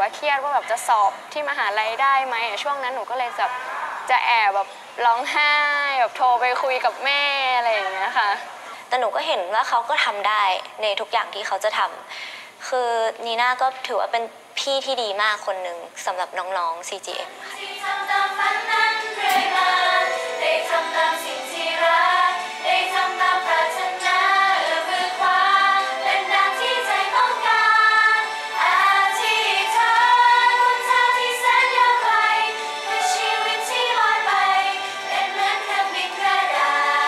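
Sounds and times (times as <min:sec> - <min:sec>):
women singing together: 0:17.4 - 0:37.0.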